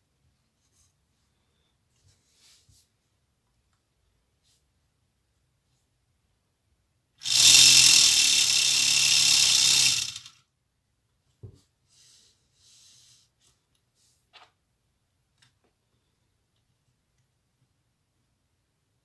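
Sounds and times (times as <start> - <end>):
toy motor whirring buzz: 7.2 - 10.4.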